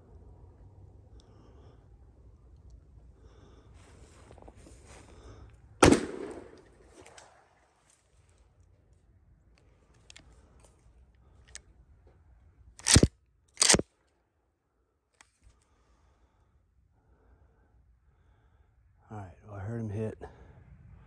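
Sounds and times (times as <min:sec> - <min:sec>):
shotgun shots: 0:05.8 - 0:07.4, 0:12.8 - 0:13.8.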